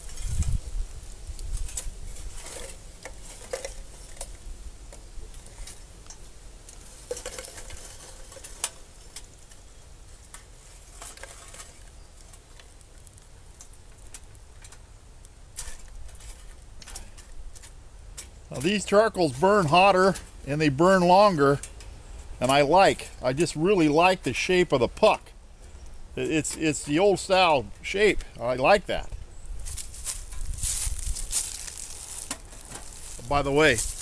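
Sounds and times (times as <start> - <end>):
charcoal clattering against metal: 1.5 - 4.4, 5.4 - 9.6, 10.3 - 14.8, 15.5 - 18.9, 29.7 - 34.0.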